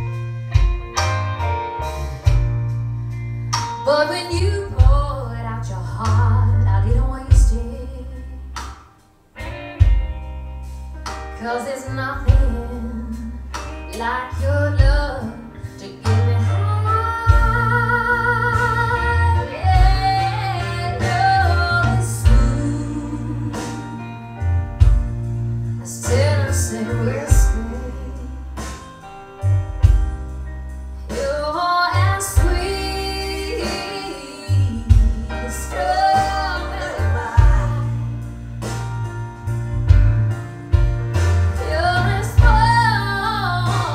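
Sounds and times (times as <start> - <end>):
woman singing over deep bass: 3.8 - 8.5, 11.4 - 24.1, 25.8 - 28.7, 31.1 - 38.4, 41.6 - 43.9.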